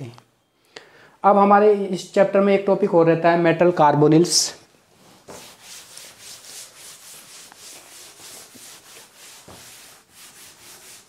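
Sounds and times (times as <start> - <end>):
duster rubbing chalkboard: 5.1 - 11.0.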